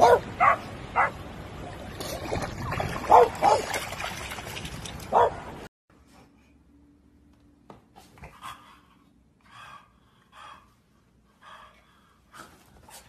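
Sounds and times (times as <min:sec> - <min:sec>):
dog barking in high yips: 0:00.0 - 0:01.2, 0:03.1 - 0:03.7, 0:05.1 - 0:05.4.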